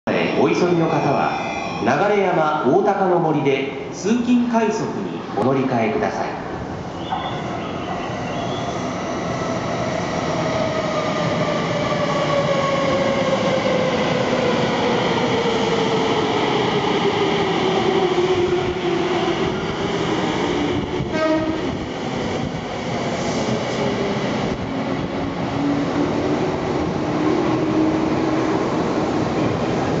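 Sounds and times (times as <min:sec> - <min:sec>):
rail and wheel rumble: 0:06.4 - 0:30.0
train horn blast: 0:21.1 - 0:21.6.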